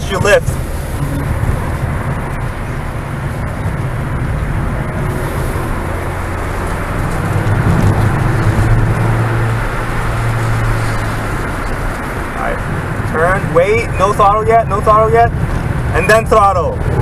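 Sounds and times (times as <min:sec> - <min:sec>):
car engine accelerating: 0:00.0 - 0:17.0.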